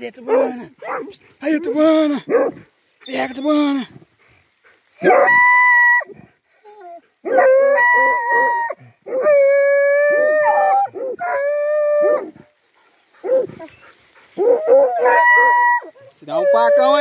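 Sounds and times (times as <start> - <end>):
dog yelping: 0.2 - 1.7, 5.0 - 12.3, 13.2 - 17.0
hound howling: 5.0 - 6.1, 6.7 - 12.4, 14.4 - 17.0.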